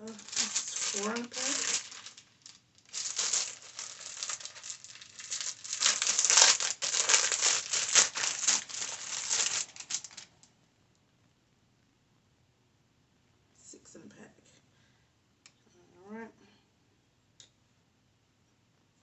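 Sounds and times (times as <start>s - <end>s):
plastic packaging crinkling and tearing: 0.0s - 10.4s.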